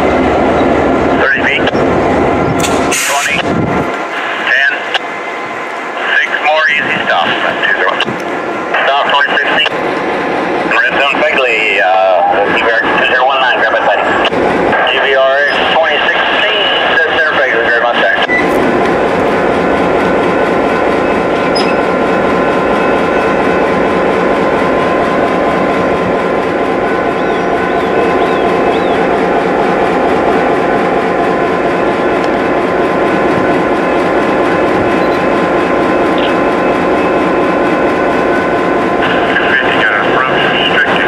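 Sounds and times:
locomotive engine droning: 0.0 - 41.0.

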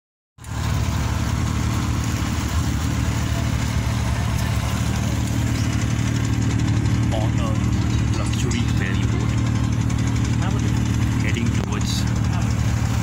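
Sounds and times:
water hissing: 0.4 - 8.1
boat engine droning: 0.4 - 13.0
wind: 0.4 - 13.0.

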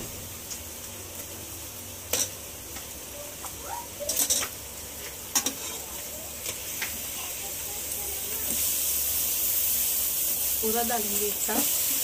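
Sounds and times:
spices sizzling in hot oil: 0.0 - 12.0
spoon scraping a pot: 5.3 - 6.6.

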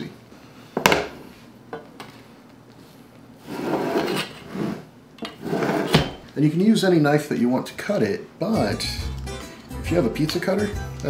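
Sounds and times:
metal spatula scraping: 3.4 - 6.2.

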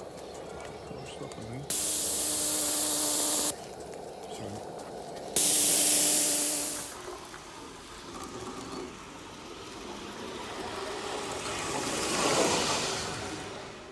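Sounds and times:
model steam locomotive running: 0.0 - 13.8
steam hissing: 1.7 - 3.6, 5.4 - 7.0.

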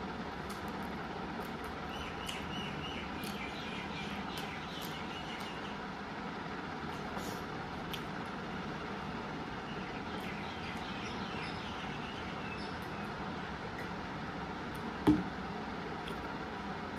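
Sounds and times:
birds chirping: 1.8 - 5.9, 8.8 - 14.0.

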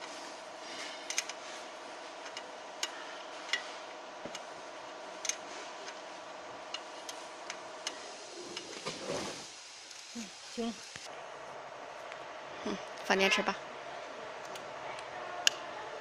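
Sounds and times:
steady background hum: 0.0 - 16.0.

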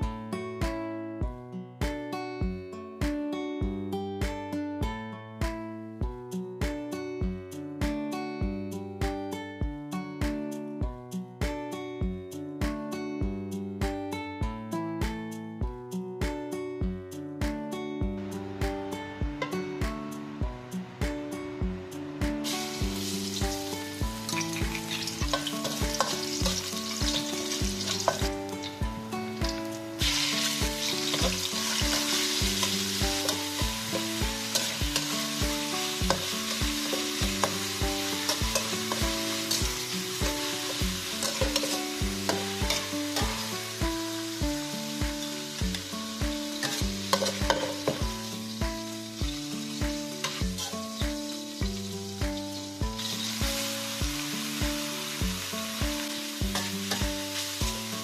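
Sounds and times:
background music with a beat: 0.0 - 58.0
metal spatula stir-frying: 19.4 - 19.8, 22.4 - 58.0
food sizzling in a wok: 22.3 - 58.0.

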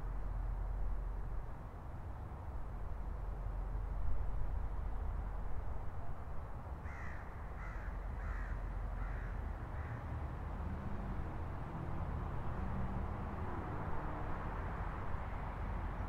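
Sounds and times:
distant traffic rumble: 0.0 - 16.0
crow cawing: 6.8 - 10.0.

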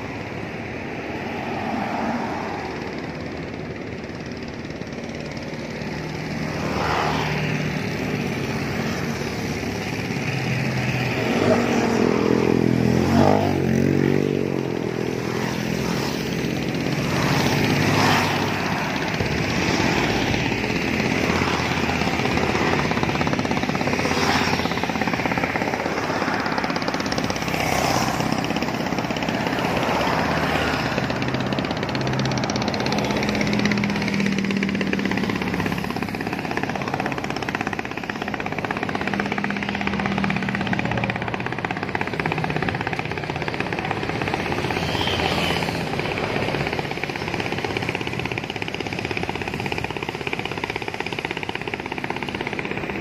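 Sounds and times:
motorcycles passing: 0.0 - 53.0
traffic passing on bridge: 0.0 - 53.0
vehicle passing close: 6.1 - 48.4.

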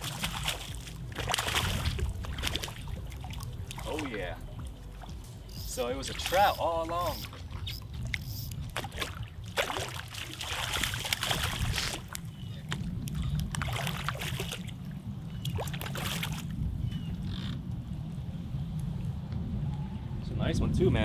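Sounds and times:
fish splashing at water surface: 0.0 - 4.1, 6.0 - 12.3
steady low rumble: 0.0 - 21.0.

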